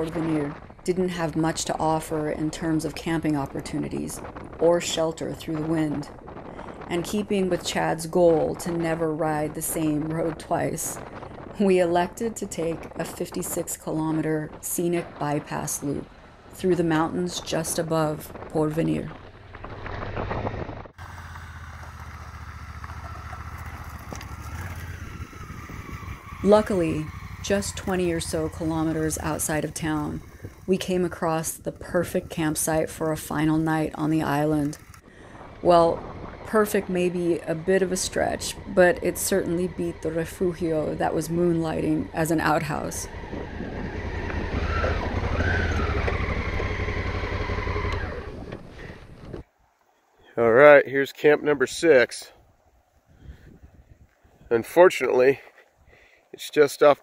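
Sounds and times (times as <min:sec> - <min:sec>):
wind on microphone: 0:00.0 - 0:21.0, 0:23.4 - 0:47.1, 0:52.9 - 0:54.6
road noise: 0:00.0 - 0:49.6
motorcycle engine running: 0:18.3 - 0:49.4.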